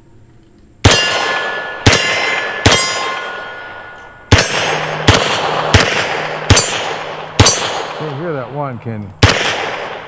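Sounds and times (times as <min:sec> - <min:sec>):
steel targets ringing: 0:00.8 - 0:08.8
pistol shots: 0:00.8 - 0:10.0.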